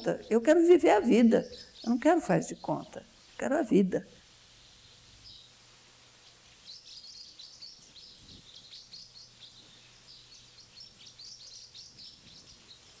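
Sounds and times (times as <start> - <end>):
high chirping birdsong: 0.0 - 13.0.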